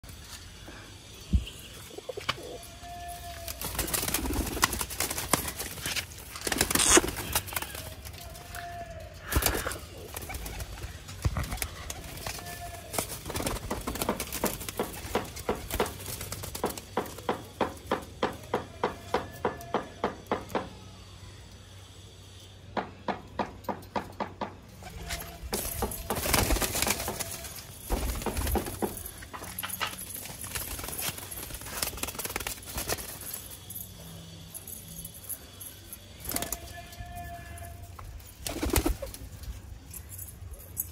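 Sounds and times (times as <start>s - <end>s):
pigeons cooing: 1.6s - 5.0s, 9.3s - 13.2s
wings flapping: 3.4s - 8.2s, 9.2s - 17.2s, 24.9s - 29.2s, 30.1s - 33.5s, 38.3s - 39.4s.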